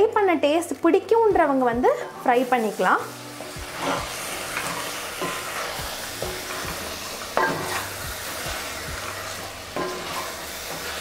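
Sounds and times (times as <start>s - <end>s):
food sizzling in a pot: 0.0s - 11.0s
spatula scraping a pot: 3.4s - 11.0s.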